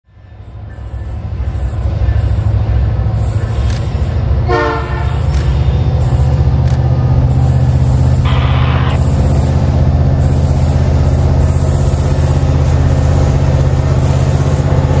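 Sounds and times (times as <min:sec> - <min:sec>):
diesel locomotive rumbling: 0:00.0 - 0:15.0
locomotive horn blast: 0:04.4 - 0:06.1, 0:08.2 - 0:09.0.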